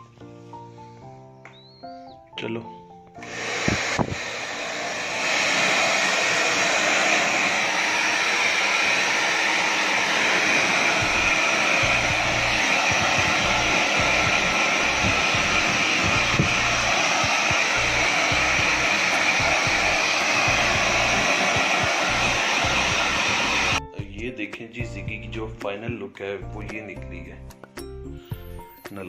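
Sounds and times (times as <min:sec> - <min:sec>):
blow dryer running: 0:03.2 - 0:23.8.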